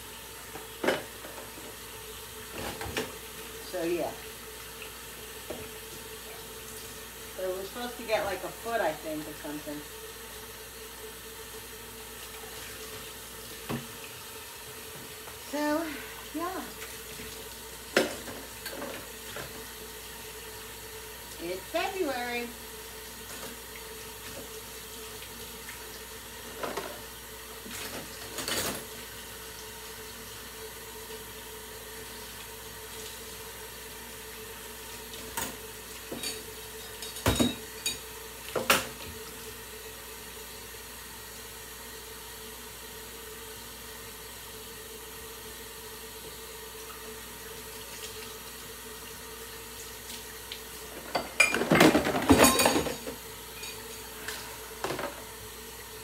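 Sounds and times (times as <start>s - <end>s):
dishes clinking and knocking: 36.1s - 38.0s, 51.0s - 53.8s, 54.8s - 55.2s.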